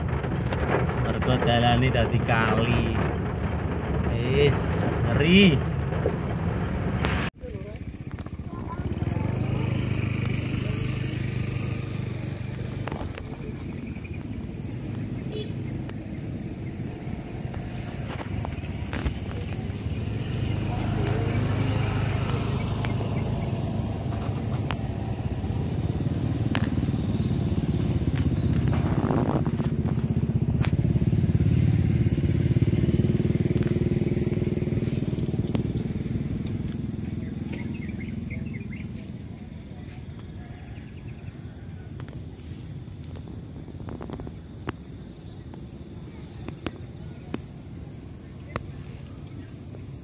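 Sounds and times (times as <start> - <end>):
engine running: 0.0 - 50.0
low river rumble: 0.0 - 50.0
bird chirps: 7.5 - 29.4, 32.7 - 50.0.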